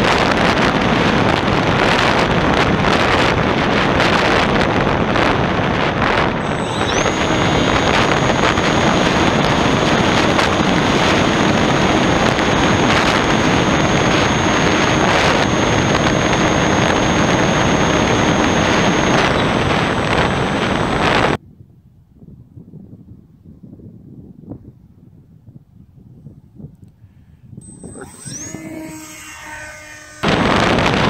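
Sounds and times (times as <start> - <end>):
electric motor and propeller whine: 0.0 - 21.4, 27.6 - 31.0
wind rush on microphone: 0.0 - 31.0.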